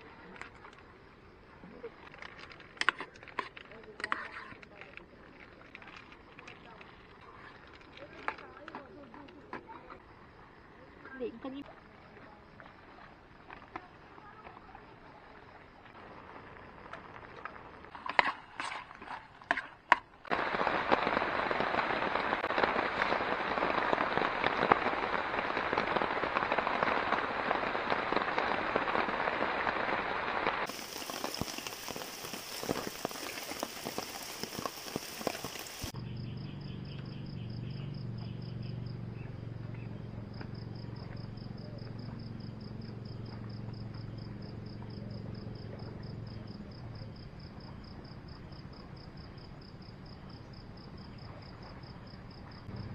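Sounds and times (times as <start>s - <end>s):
crickets chirping: 0.0s - 18.0s, 20.3s - 52.9s
food sizzling in a pan: 29.8s - 36.0s.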